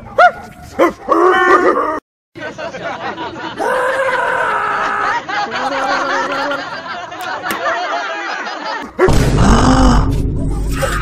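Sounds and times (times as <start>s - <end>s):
people laughing and calling out: 1.2s - 9.1s.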